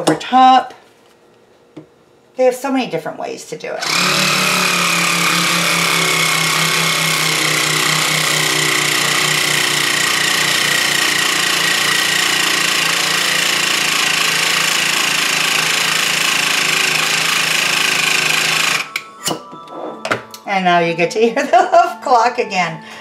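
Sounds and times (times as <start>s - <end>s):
vacuum sealer motor whining: 3.8s - 19.1s.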